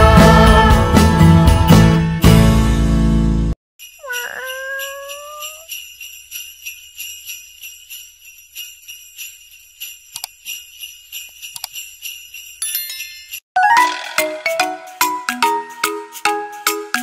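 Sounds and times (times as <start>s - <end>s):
sleigh bells jingling: 3.8s - 13.5s.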